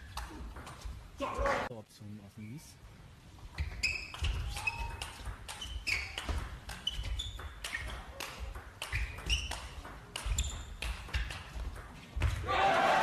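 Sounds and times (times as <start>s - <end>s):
shoes squeaking on floor: 3.4s - 11.2s
table tennis ball clicking: 4.0s - 11.9s.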